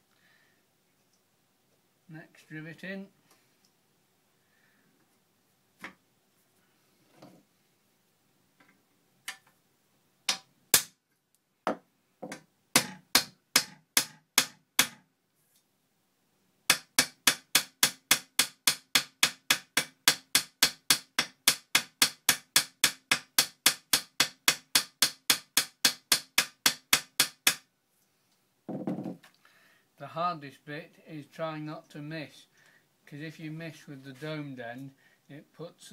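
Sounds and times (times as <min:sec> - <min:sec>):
hammer striking steel rivet: 0:10.3 - 0:10.9, 0:11.7 - 0:15.0, 0:16.7 - 0:27.6.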